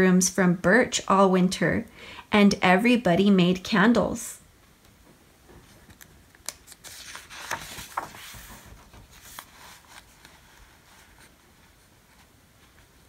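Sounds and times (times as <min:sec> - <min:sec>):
paper page turning: 0:05.8 - 0:11.4.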